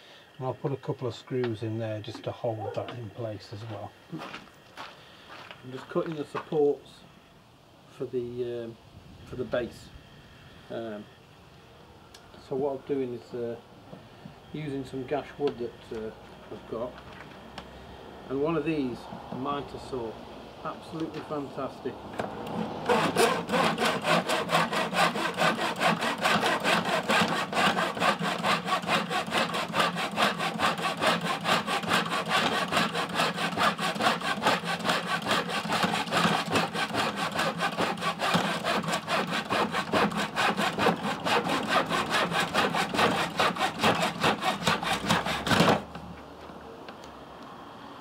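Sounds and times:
hand saw cutting wood: 22.4s - 46.0s.

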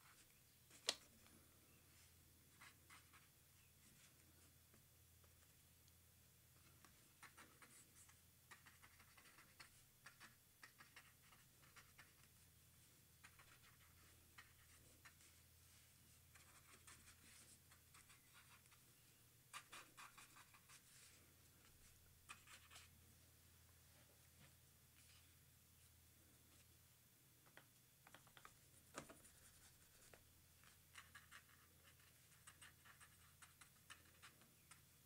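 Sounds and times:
pen scratching across paper: 30.6s - 34.4s.

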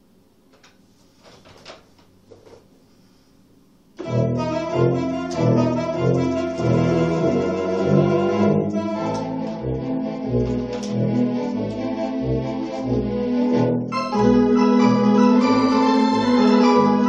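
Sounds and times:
electronic organ playing chords: 4.0s - 17.0s.

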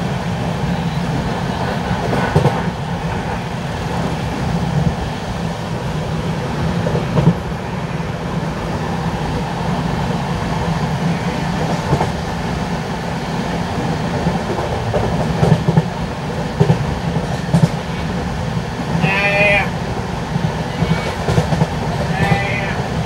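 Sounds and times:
train coach rumbling on track: 0.0s - 23.0s
wheel clacks at rail joints: 0.8s - 4.2s, 6.7s - 7.5s, 11.5s - 12.3s, 13.5s - 23.0s.

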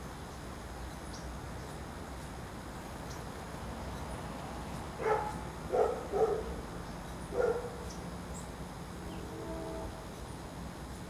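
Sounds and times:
dog barks: 5.0s - 6.5s, 7.3s - 7.8s.

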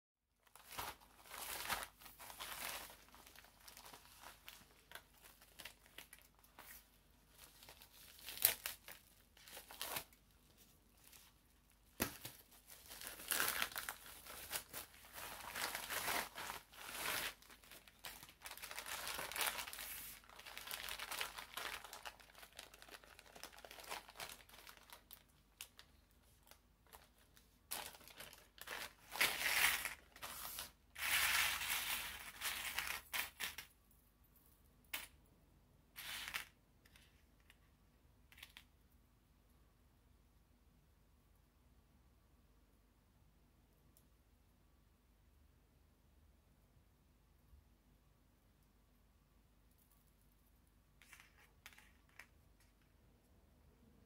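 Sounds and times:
plastic packaging crinkling: 0.5s - 10.2s, 11.0s - 33.7s.

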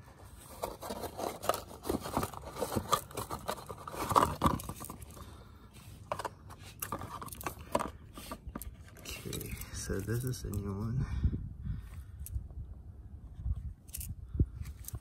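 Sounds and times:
packaging crinkling and rustling: 0.3s - 5.4s.

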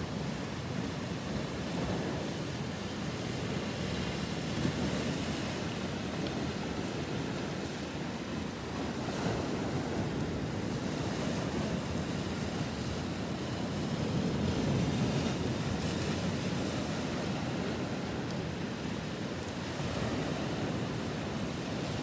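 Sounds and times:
ocean surf: 0.0s - 22.0s.

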